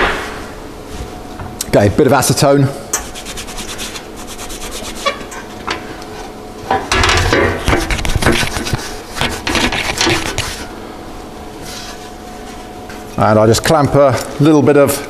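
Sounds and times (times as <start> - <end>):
rag rubbing on metal: 3.0 - 5.3.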